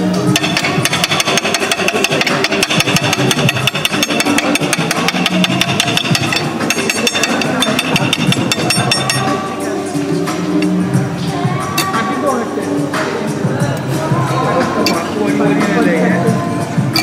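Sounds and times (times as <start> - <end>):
background music: 0.0 - 17.0
knife and fork clattering on plate: 0.4 - 9.4.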